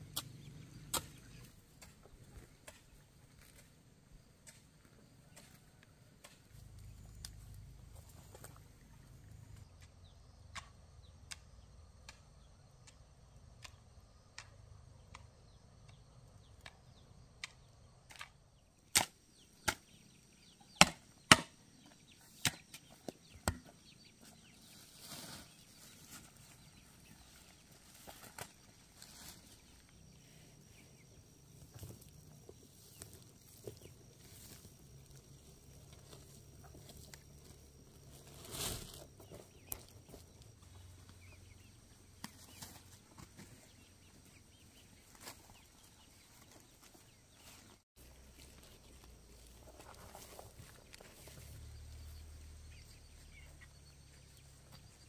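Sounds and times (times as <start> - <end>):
sharp chopping strikes: 20.8 - 21.5.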